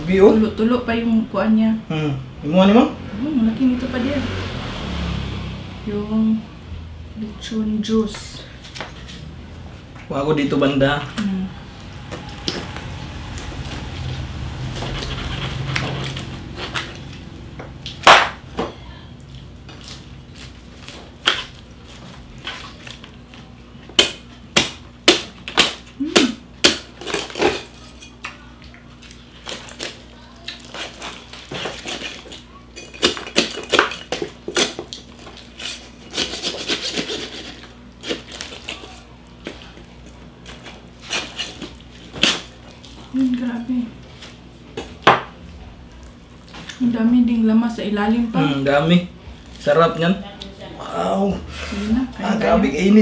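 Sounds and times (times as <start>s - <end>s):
crisp roasted skin crunching: 19.2s - 43.4s, 48.6s - 50.6s.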